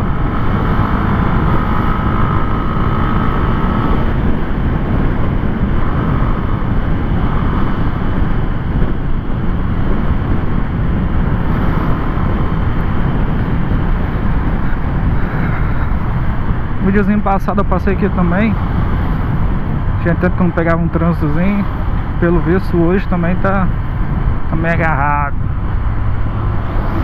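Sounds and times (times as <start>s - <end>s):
motorcycle engine cruising: 0.0s - 27.0s
wind noise on microphone: 0.0s - 27.0s.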